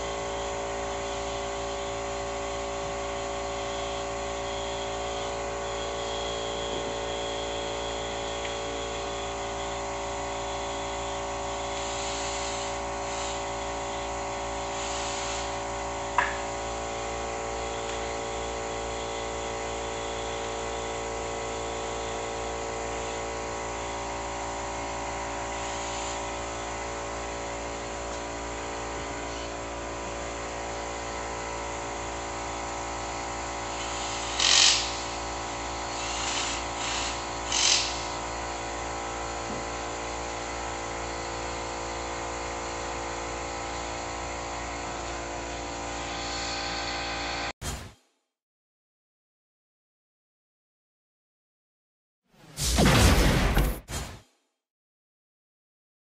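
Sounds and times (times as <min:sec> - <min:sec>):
cordless drill driver bursts: 0:33.7 - 0:38.4.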